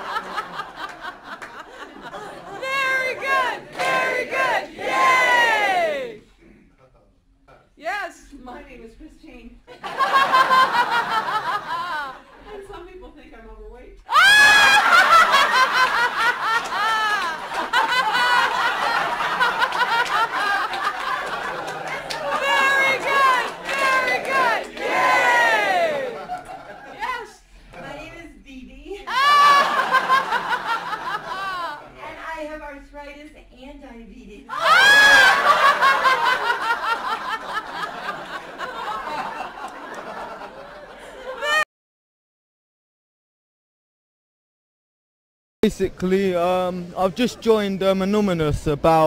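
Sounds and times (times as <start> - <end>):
woman laughing loudly: 14.1 - 20.9, 29.1 - 31.8, 41.2 - 41.6.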